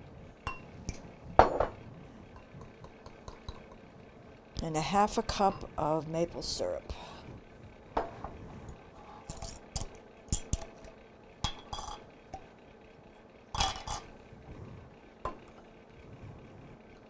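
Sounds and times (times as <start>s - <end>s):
utensils clinking against bowl: 9.2s - 12.5s, 13.6s - 14.1s.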